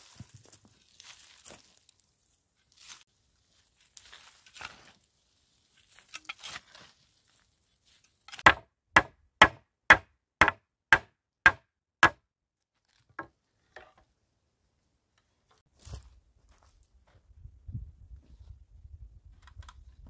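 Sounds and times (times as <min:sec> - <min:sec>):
scraping of dry soil dug by hand: 0:00.0 - 0:08.4
hammer blows on wooden poles: 0:08.4 - 0:12.2.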